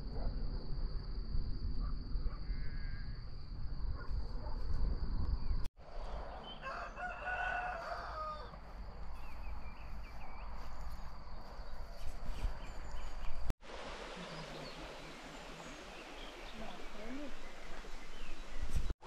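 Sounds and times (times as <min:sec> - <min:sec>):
low wind rumble: 0:00.0 - 0:19.0
rooster crowing: 0:06.4 - 0:08.6
small birds chirping: 0:08.8 - 0:13.5, 0:14.2 - 0:18.9.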